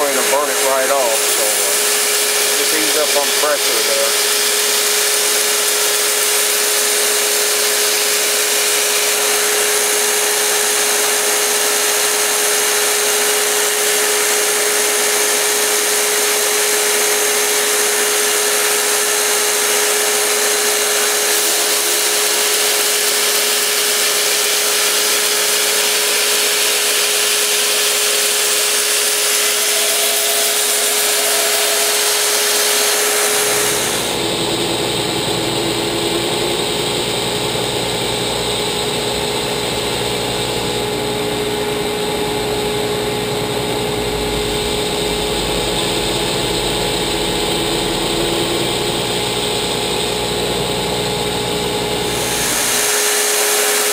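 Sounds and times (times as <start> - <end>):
deeper-running machine: 0.0 - 4.5, 28.6 - 53.9.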